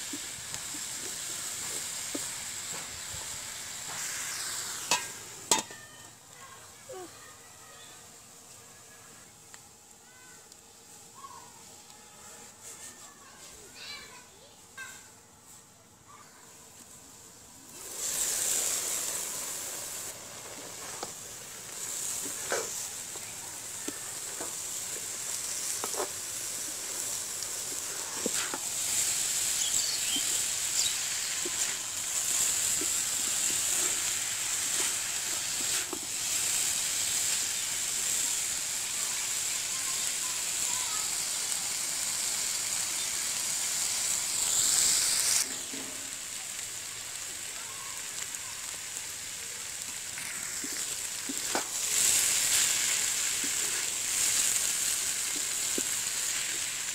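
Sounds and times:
vegetables sizzling in hot oil: 0:00.0 - 0:12.0, 0:12.7 - 0:56.9
wooden spatula scraping a pan: 0:21.8 - 0:31.8, 0:32.4 - 0:36.2, 0:45.4 - 0:46.1.

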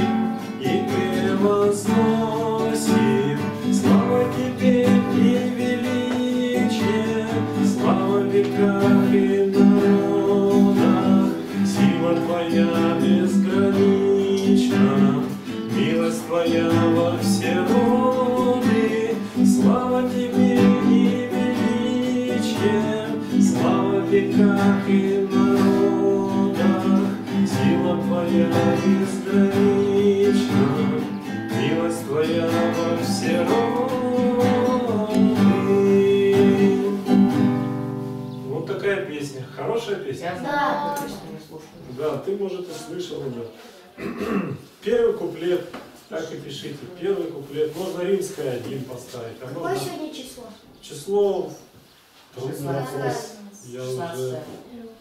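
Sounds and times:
man singing: 0:00.0 - 0:37.5
classical guitar strumming: 0:00.0 - 0:39.1.

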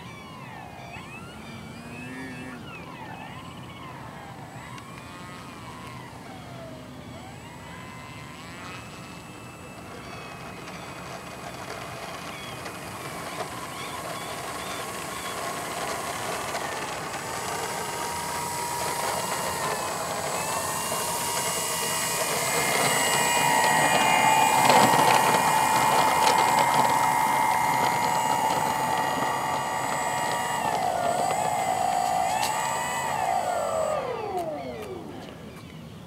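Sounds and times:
electric motor and propeller whining: 0:00.0 - 0:36.0
wheels rattling over gravel: 0:09.8 - 0:35.2.

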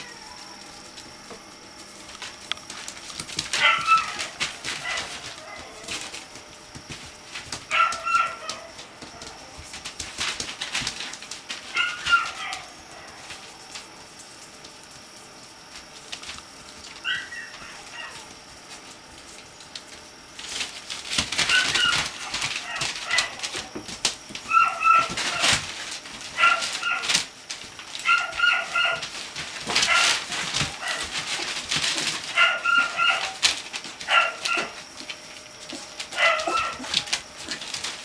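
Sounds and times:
puppies yelping: 0:00.0 - 0:01.4, 0:02.7 - 0:06.5, 0:07.5 - 0:09.6, 0:11.6 - 0:13.3, 0:16.9 - 0:18.4, 0:21.2 - 0:23.7, 0:24.4 - 0:27.3, 0:27.9 - 0:38.0
newspaper crackling under paws: 0:00.0 - 0:38.0.

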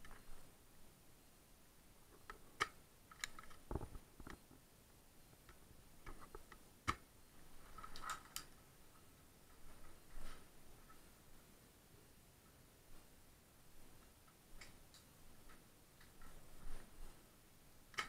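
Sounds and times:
faint sharp clicks and knocks: 0:02.1 - 0:04.6, 0:05.3 - 0:07.1, 0:13.8 - 0:17.2.

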